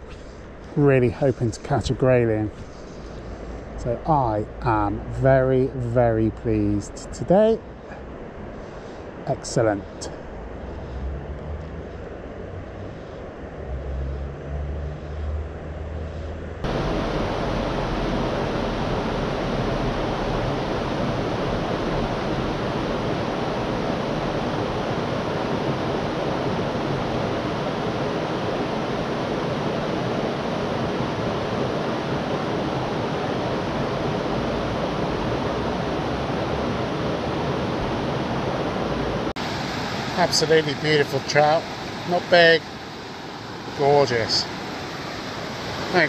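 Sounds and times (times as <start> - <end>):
low rumble: 10.1 - 24.8
river water rushing over stones: 16.6 - 46.0.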